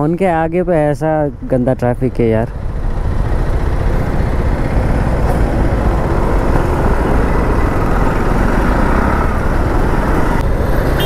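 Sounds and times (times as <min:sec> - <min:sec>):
traffic engines idling: 0:00.0 - 0:11.0.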